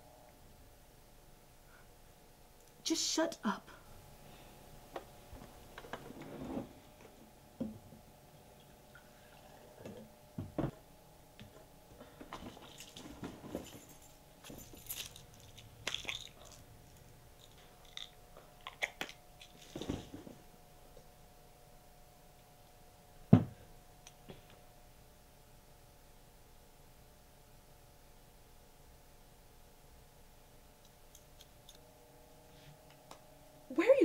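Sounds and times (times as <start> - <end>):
faint steady hum: 0.0 - 34.0
objects handled at a table: 11.4 - 20.4.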